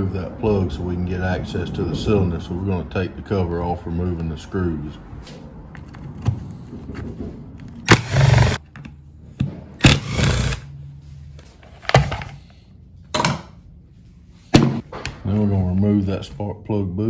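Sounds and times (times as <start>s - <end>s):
screwdriver removing screws: 7.8s - 8.6s.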